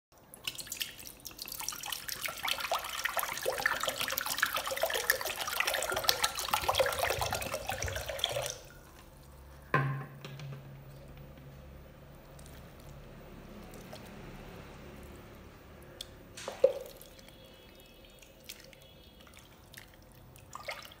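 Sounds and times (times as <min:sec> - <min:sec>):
liquid pouring into metal pot: 0:00.3 - 0:09.0, 0:13.5 - 0:21.0.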